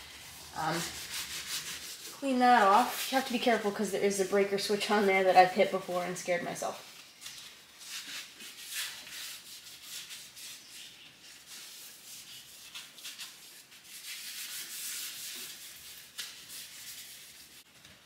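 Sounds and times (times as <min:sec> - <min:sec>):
cloth wiping a panel: 0:00.0 - 0:05.1.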